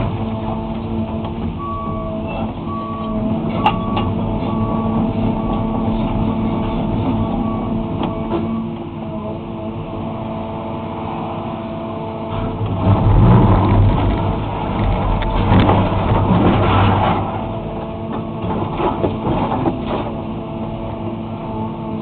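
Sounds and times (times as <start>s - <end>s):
excavator diesel engine running: 0.0s - 22.0s
bucket scraping asphalt: 12.3s - 17.6s.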